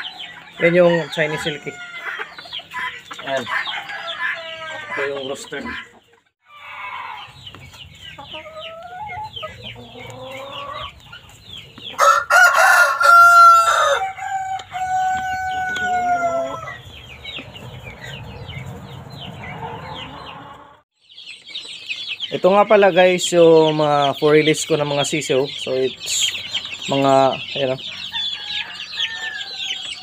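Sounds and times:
hens clucking: 0.0 - 20.8
rooster crowing: 12.0 - 16.8, 28.0 - 30.0.

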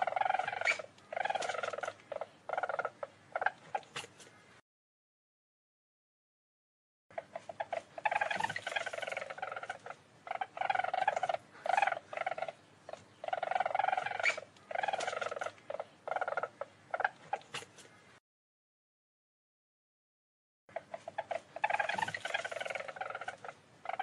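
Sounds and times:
weasel chattering: 0.0 - 4.3, 7.1 - 18.0, 20.7 - 24.0.

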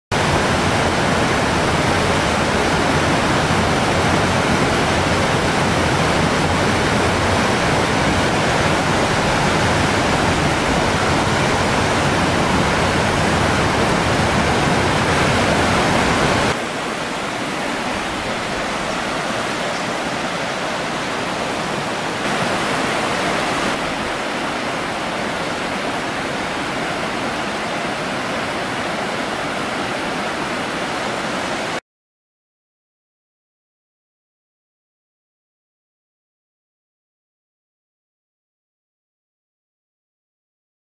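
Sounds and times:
stream rushing over rocks: 0.1 - 31.8.

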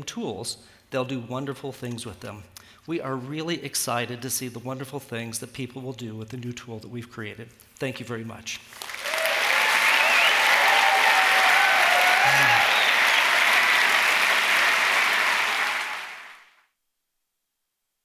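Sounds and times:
audience applauding: 8.7 - 16.6.

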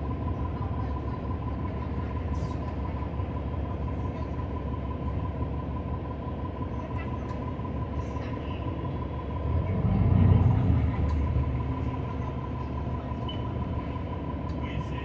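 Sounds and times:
bus engine and road rumble: 0.0 - 15.0
constant high-pitched tone: 10.9 - 15.0.

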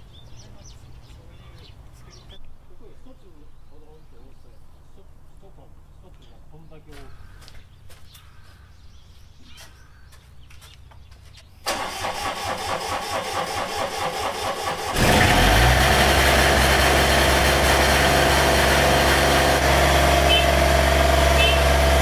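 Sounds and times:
diesel engine starter cranking: 11.6 - 22.0
diesel engine running loudly: 11.7 - 22.0.

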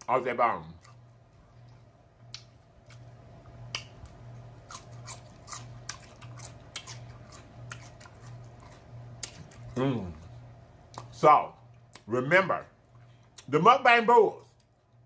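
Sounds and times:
chewing meat: 0.0 - 12.1
wet mouth smacks and clicks: 2.2 - 2.6.

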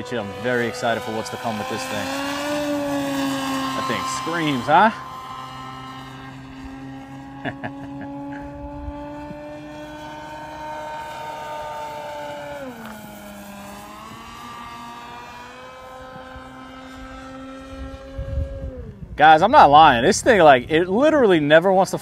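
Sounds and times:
model plane propeller flying overhead: 0.0 - 22.0.

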